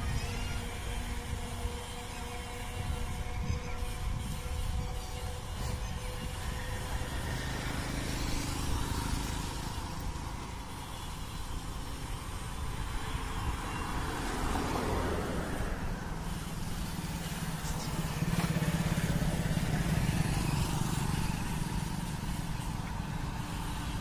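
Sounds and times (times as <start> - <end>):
road traffic passing: 0.0 - 24.0.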